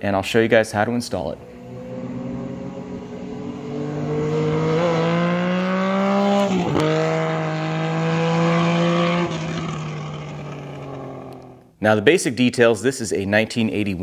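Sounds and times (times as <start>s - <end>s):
vehicle engine accelerating: 1.3s - 11.6s.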